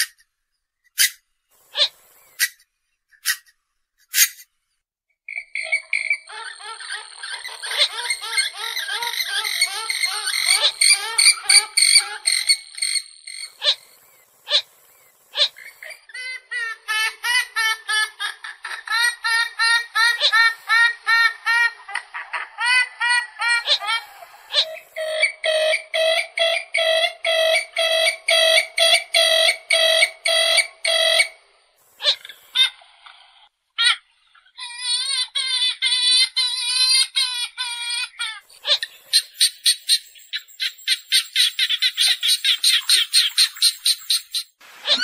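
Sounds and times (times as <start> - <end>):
bird calls: 0.9 - 4.5, 5.3 - 31.4, 32.0 - 32.8, 37.0 - 45.0.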